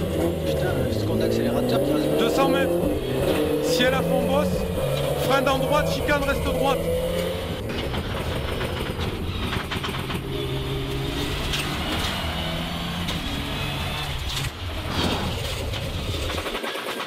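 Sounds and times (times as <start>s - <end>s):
car engine from inside cabin: 0.0s - 8.0s
tyre and road noise: 0.0s - 17.0s.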